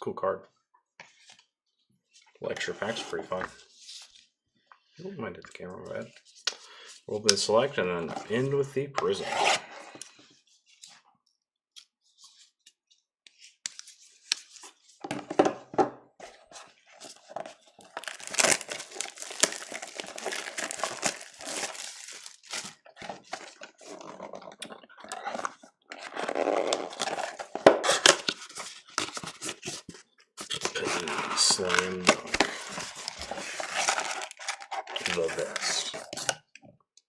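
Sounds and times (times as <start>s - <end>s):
shrink-wrap and cardboard crinkling: 16.4s - 36.3s.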